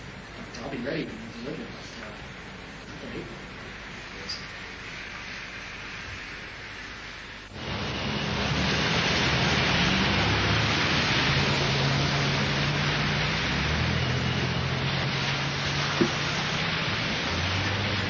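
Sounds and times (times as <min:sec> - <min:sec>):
rain on a wet street: 0:00.0 - 0:18.0
car engines humming in traffic: 0:07.5 - 0:18.0.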